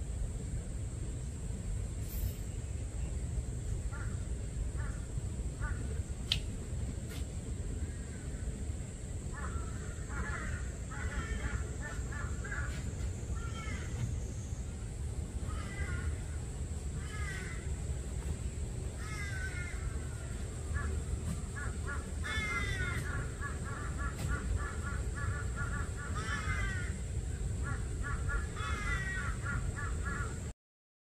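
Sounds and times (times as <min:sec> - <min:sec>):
steady low rumble: 0:00.0 - 0:30.5
harsh bird calls: 0:07.5 - 0:30.5
rapid repeated bird notes: 0:09.4 - 0:30.5.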